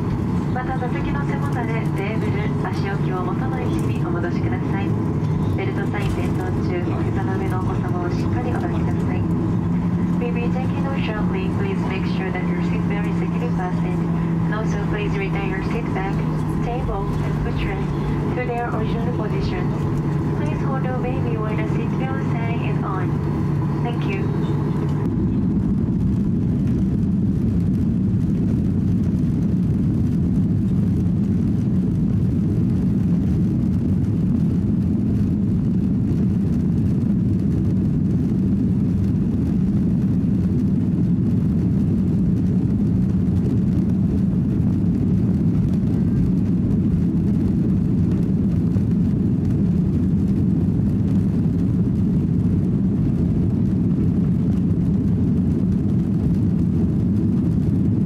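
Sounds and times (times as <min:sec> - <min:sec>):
airplane cabin low rumble: 0:00.0 - 0:58.0.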